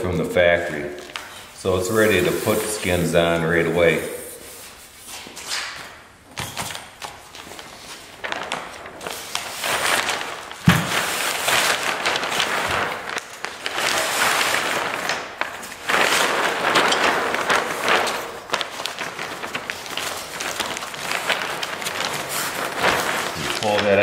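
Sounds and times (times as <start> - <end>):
fabric rustling and swishing: 7.3 - 24.0
thump: 10.7 - 11.0.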